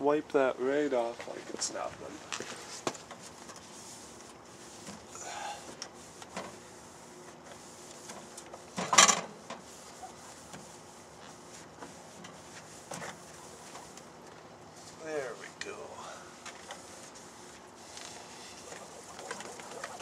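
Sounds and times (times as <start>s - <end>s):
paper towel rubbing glass: 9.7s - 14.0s, 16.7s - 20.0s.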